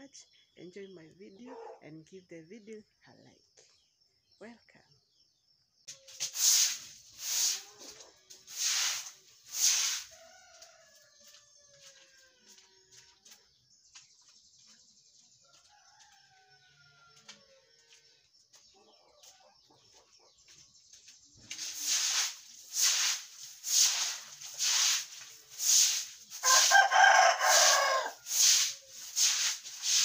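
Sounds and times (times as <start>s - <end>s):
broom sweeping wet ground: 5.9s - 14.1s, 20.6s - 30.0s
rooster crowing: 26.4s - 28.8s.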